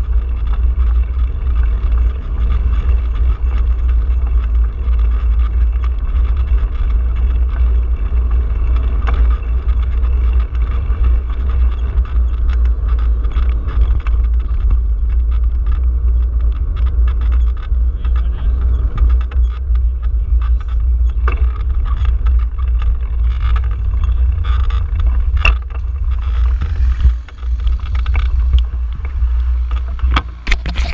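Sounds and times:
knocks and rattles: 0.0s - 30.9s
tyre and road noise: 0.0s - 30.9s
wind buffeting microphone: 0.0s - 30.9s.

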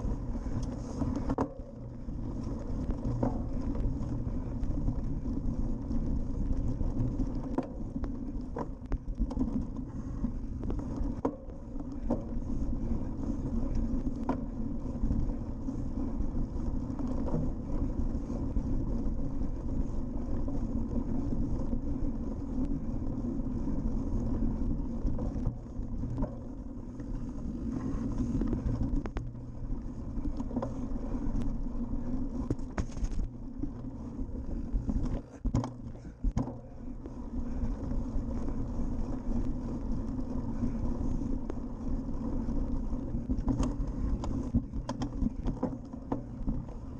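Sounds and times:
bike rattling and knocking: 0.0s - 46.9s
bike tyres rumbling on grass: 0.0s - 46.9s
wind: 0.0s - 46.9s.

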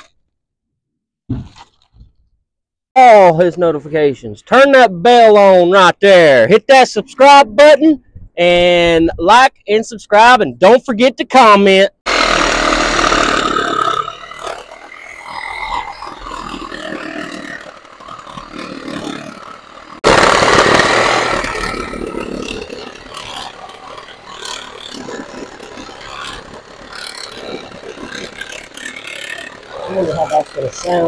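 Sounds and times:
reciprocating saw cutting wood: 0.0s - 0.2s, 12.0s - 31.0s.

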